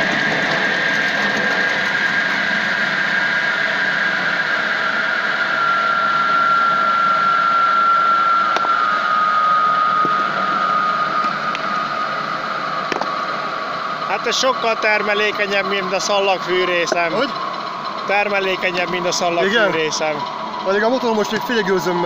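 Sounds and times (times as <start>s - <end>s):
circular saw whine: 0.0s - 22.0s
small petrol engine idling: 15.8s - 21.3s.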